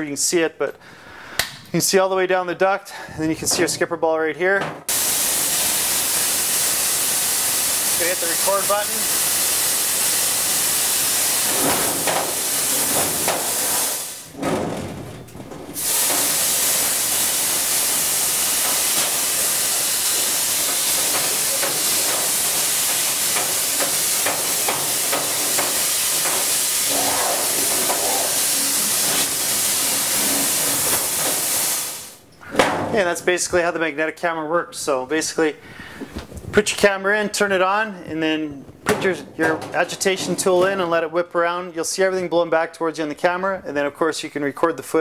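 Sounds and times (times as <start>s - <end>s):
compressed air hissing: 4.8s - 14.4s, 15.7s - 32.3s.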